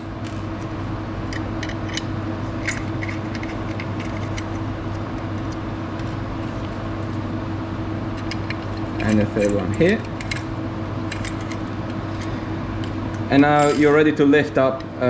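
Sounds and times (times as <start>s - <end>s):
room equipment hum: 0.0s - 15.0s.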